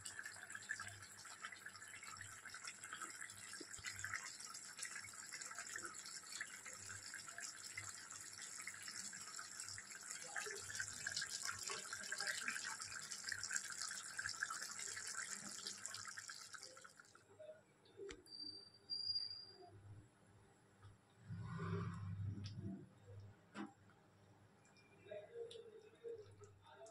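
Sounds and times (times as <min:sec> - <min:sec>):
curry sizzling and bubbling: 0:00.0 - 0:17.2.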